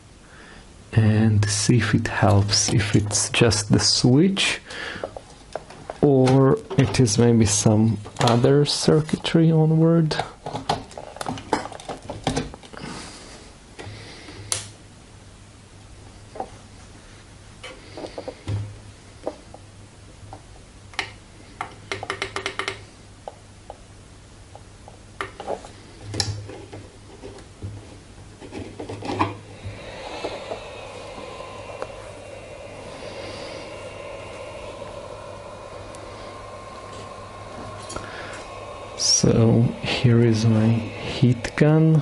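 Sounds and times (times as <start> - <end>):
low mains hum: 0.0 - 42.0
heat gun blowing: 29.4 - 42.0.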